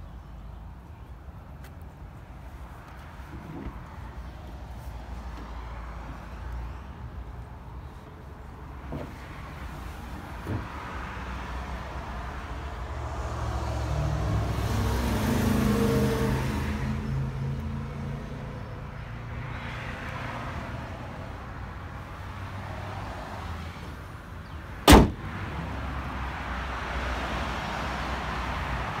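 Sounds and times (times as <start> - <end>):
sharp bang: 24.9 - 25.2.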